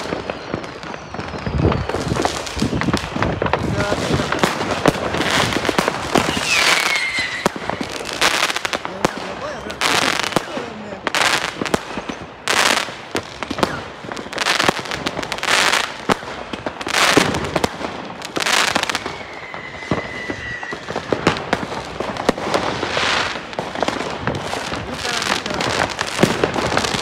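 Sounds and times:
firework whistle: 0.0 - 8.7, 13.4 - 14.8, 18.5 - 21.4
firework bursts: 0.0 - 27.0
firework crackling: 0.0 - 27.0.

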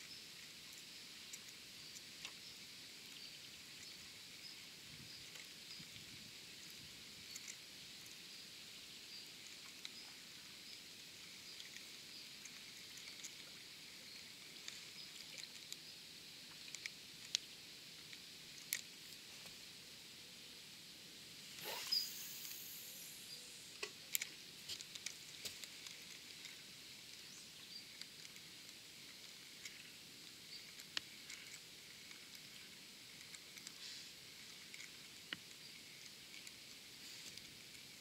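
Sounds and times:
small clicks and ticks: 0.0 - 19.7, 21.5 - 38.0
steady high hiss: 0.0 - 38.0.

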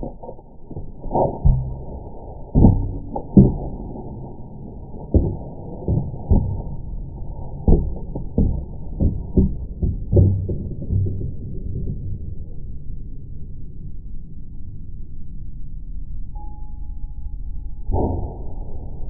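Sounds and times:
dull thumps and knocks: 0.0 - 11.8.

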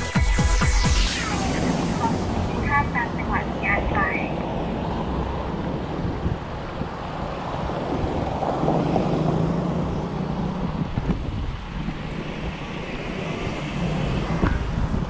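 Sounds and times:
road traffic passing: 0.0 - 15.0
wind buffeting microphone: 1.5 - 15.0.

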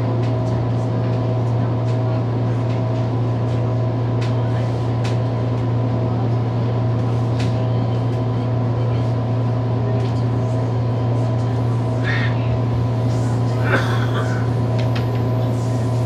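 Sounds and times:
subway train hum: 0.0 - 16.0.

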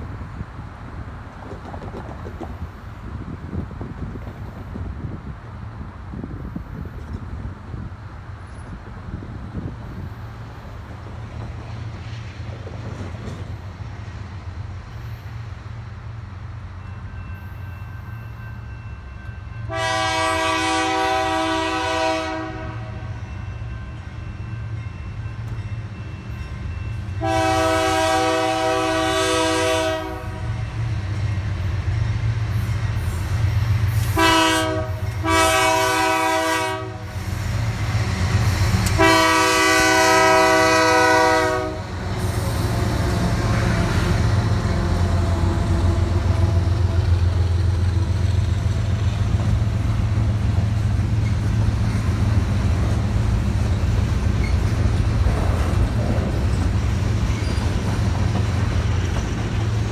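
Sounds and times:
locomotive engines rumbling: 0.0 - 59.9
train air horn blasts: 19.6 - 23.3, 27.1 - 30.7, 33.9 - 37.3, 38.9 - 47.2.

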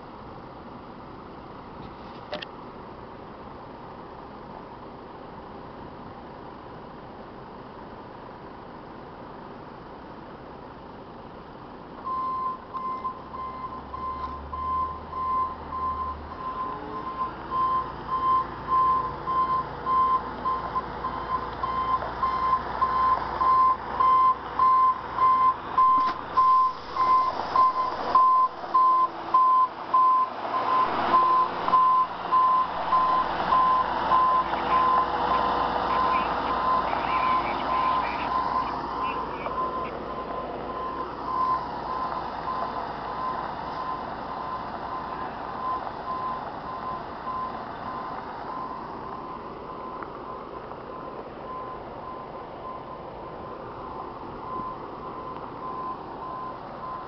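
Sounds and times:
truck engine and tyres: 0.0 - 57.0
reversing beeper beeps: 12.1 - 53.2, 54.4 - 57.0.

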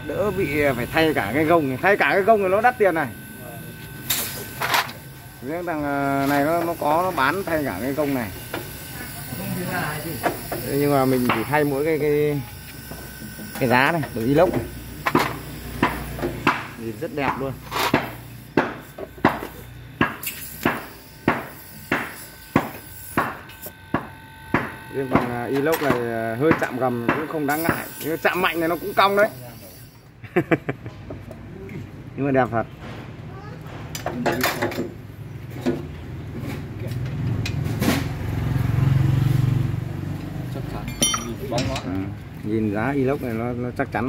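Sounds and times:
vehicle engine humming: 0.0 - 20.1
hammer blows ringing: 15.1 - 28.5, 40.9 - 41.6.

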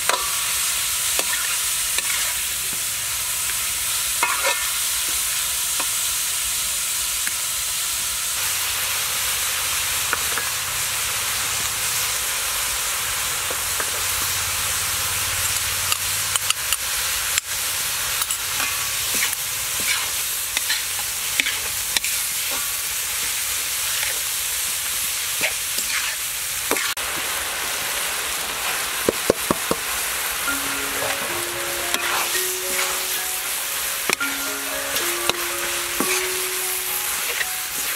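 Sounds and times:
food sizzling in a wok: 0.0 - 37.9.

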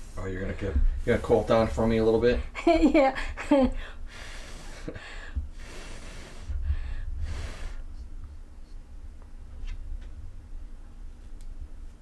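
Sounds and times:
person blowing airy puffs: 3.9 - 7.9
breath rumble on microphone: 4.2 - 8.4.

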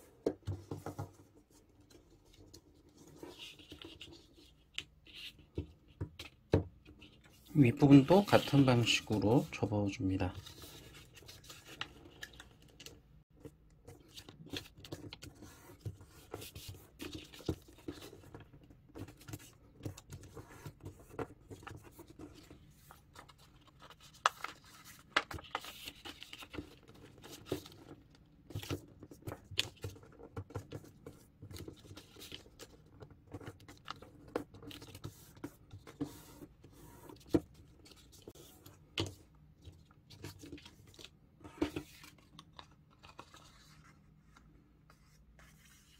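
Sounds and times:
paper rustling and crinkling: 7.0 - 45.9.

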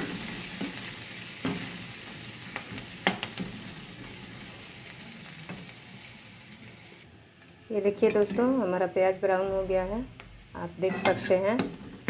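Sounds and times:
onions sizzling in hot oil: 0.0 - 12.0
steel ladle scraping a pan: 10.8 - 11.8.

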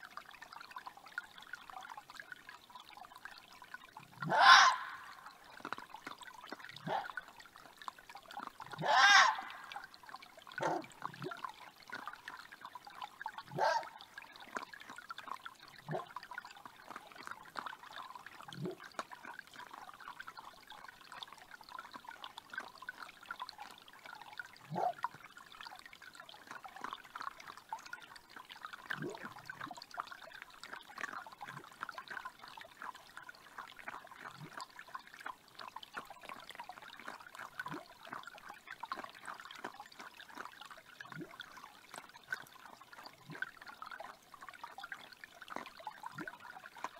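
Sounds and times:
creek trickling: 0.0 - 46.9
fox calls: 4.2 - 5.2, 8.8 - 9.8, 10.6 - 10.8, 13.6 - 13.9.

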